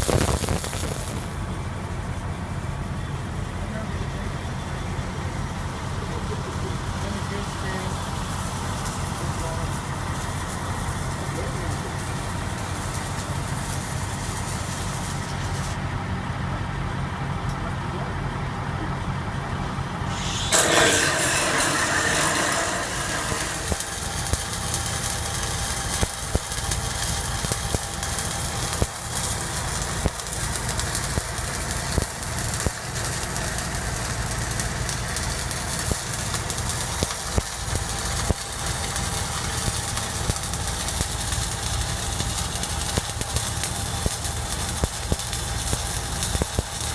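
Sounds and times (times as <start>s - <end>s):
welding arc crackling and popping: 0.0s - 1.5s, 7.8s - 15.8s, 20.1s - 46.9s
welder engine humming: 0.0s - 1.9s, 7.2s - 15.8s, 20.0s - 46.9s.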